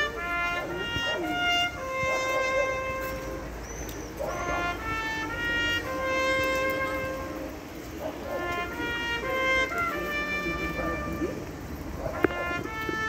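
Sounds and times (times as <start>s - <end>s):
trumpet playing slow long notes: 0.0s - 3.6s, 4.3s - 13.0s.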